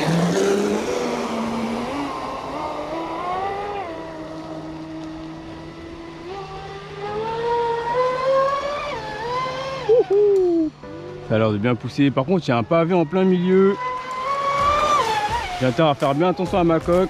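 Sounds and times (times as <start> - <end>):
electric motor whining: 0.0 - 11.0, 12.3 - 17.0.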